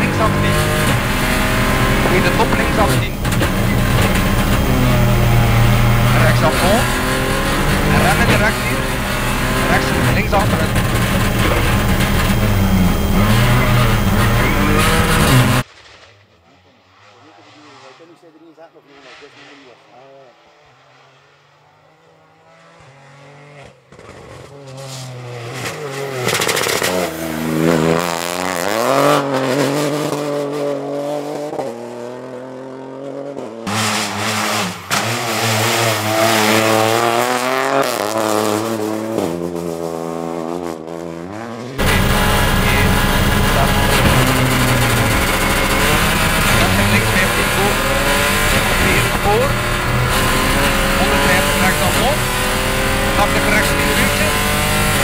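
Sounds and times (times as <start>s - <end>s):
engine and road noise in cabin: 0.0s - 15.7s, 41.7s - 55.0s
rally car engine at full throttle: 0.0s - 55.0s.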